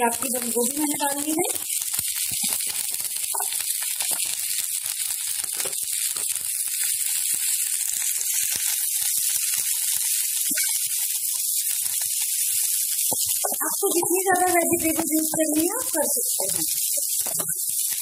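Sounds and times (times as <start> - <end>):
cabbage sizzling in hot oil: 0.0 - 18.0.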